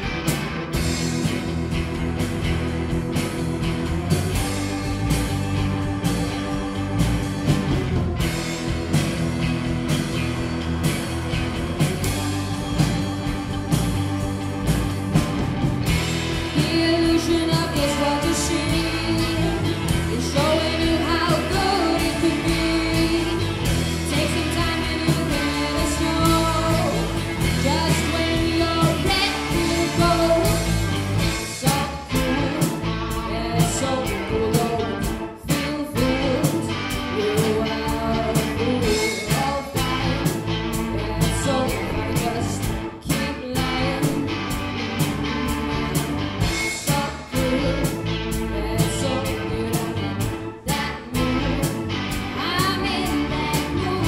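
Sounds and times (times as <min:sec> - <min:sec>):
live blues band: 0:00.0 - 0:54.0
woman singing: 0:16.3 - 0:44.3, 0:46.7 - 0:54.0.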